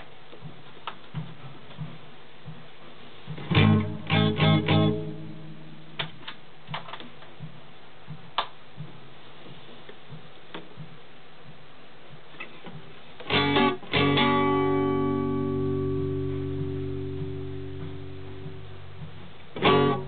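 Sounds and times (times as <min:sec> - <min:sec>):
strummed electric guitar chords: 0:03.4 - 0:06.2, 0:13.2 - 0:20.0.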